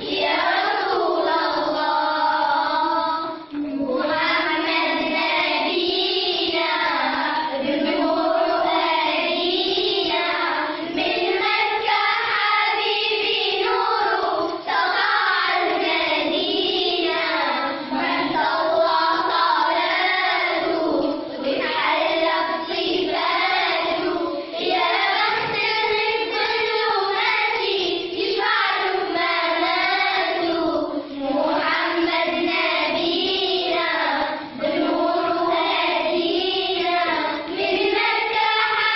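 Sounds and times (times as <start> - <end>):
children singing together: 0.0 - 38.9.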